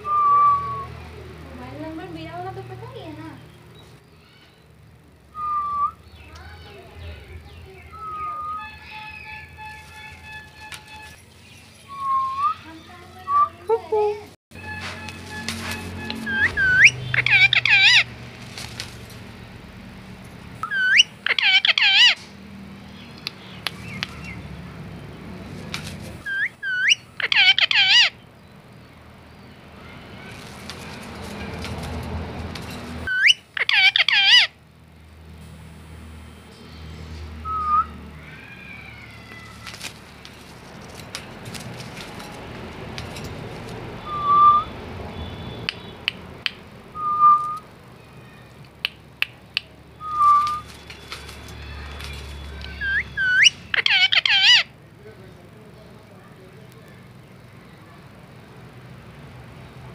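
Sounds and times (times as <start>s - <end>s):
parakeet whistling: 0.0s - 1.0s, 5.3s - 6.3s, 7.9s - 11.2s, 11.8s - 13.6s, 14.6s - 18.1s, 20.6s - 22.2s, 26.3s - 28.2s, 33.1s - 34.5s, 37.4s - 38.0s, 44.0s - 46.0s, 46.9s - 47.7s, 50.0s - 50.8s, 52.4s - 54.7s
sharp clicks: 23.1s - 24.3s, 45.6s - 46.7s.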